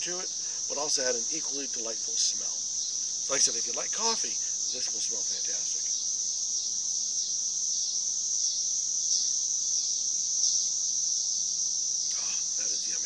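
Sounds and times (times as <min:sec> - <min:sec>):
insects chorus droning: 0:00.0 - 0:13.0.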